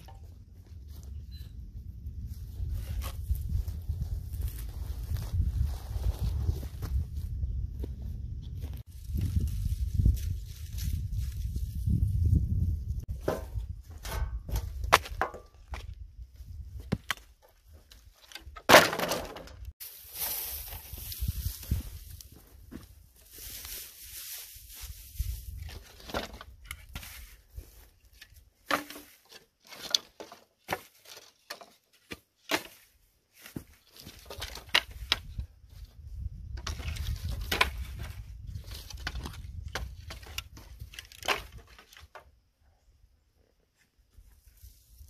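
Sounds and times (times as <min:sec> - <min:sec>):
dry grass rustling and crackling: 0:00.0 - 0:18.5, 0:19.6 - 0:42.4.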